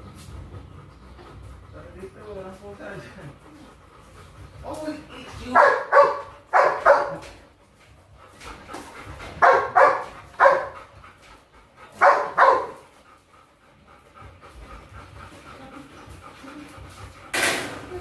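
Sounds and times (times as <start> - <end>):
dog barking: 5.5 - 7.3, 9.4 - 10.8, 12.0 - 12.8.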